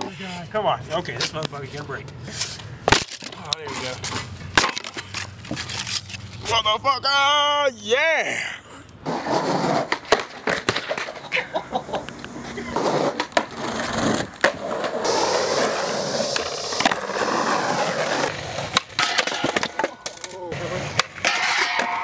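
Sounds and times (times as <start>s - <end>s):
skateboards rolling on concrete: 0.0s - 6.7s, 8.0s - 22.0s
skateboards clacking: 2.4s - 6.6s, 9.0s - 22.0s.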